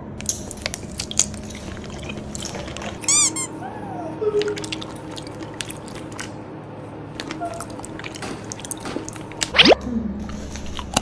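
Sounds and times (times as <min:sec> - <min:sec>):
cartoon squeaks: 0:03.0 - 0:03.6.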